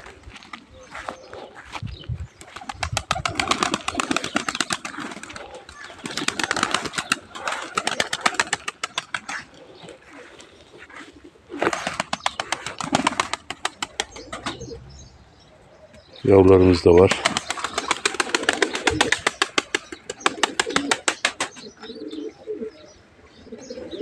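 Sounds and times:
pigeons cooing: 0.0 - 24.0
pigeons flapping wings: 2.4 - 9.5, 11.5 - 14.6, 17.0 - 21.7.

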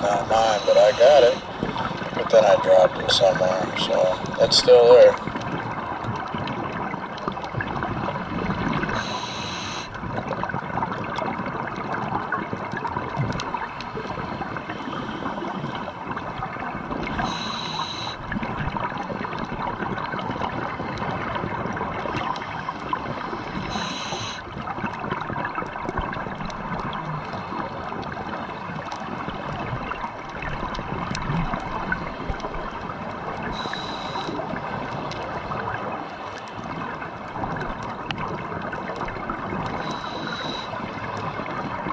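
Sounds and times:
scuba regulator breathing: 0.0 - 2.2, 3.6 - 4.4, 9.0 - 10.0, 14.4 - 15.9, 17.1 - 18.2, 22.2 - 24.4, 33.5 - 34.5, 39.8 - 40.8
underwater hiss with crackling: 0.0 - 11.3, 12.1 - 41.9.

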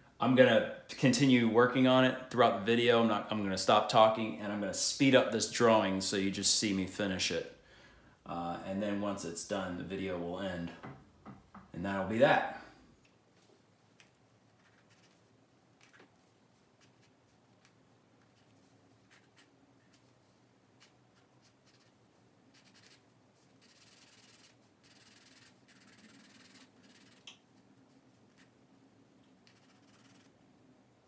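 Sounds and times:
pencil scratching on paper: 14.6 - 15.2, 19.1 - 19.5, 20.8 - 27.2, 29.5 - 30.3.

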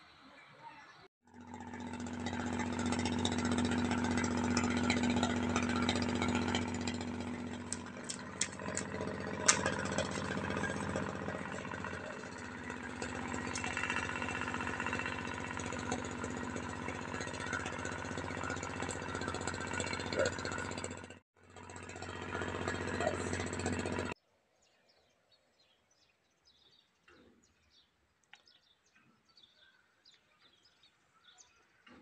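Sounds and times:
steady machine hum: 1.3 - 21.2, 21.8 - 24.2
sharp clicks: 6.9 - 10.4.

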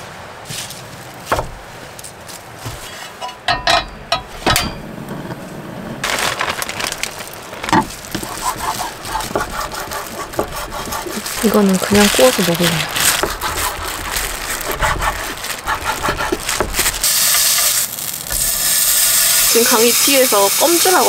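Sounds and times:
plastic bag and gloves crinkling: 5.9 - 18.8.

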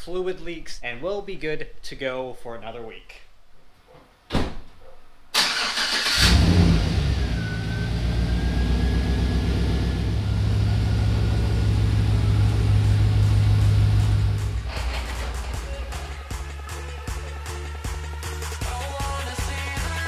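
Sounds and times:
pickup truck engine starting: 5.4 - 16.4
engine idling: 6.2 - 16.5.

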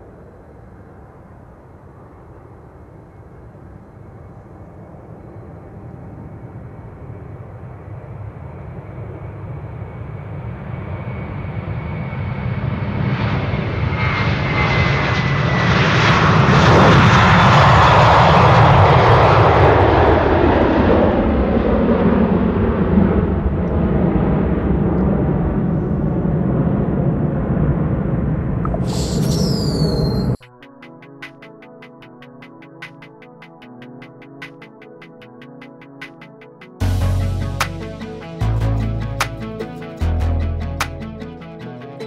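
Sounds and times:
jet engine whine: 0.0 - 37.1
jet engines roaring: 2.0 - 30.4.

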